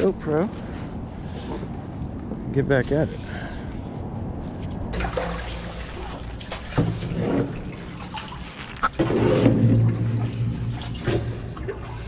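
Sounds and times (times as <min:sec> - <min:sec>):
water sloshing around kayak: 0:04.8 - 0:12.0
paddle splashes: 0:04.9 - 0:12.0.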